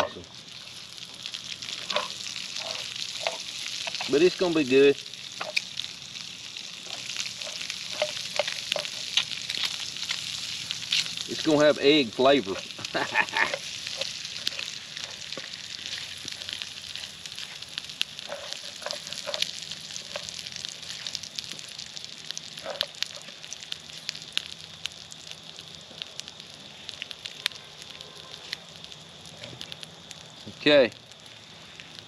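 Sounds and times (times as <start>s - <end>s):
crackling pops: 0.0s - 32.0s
food sizzling in a skillet: 0.0s - 32.0s.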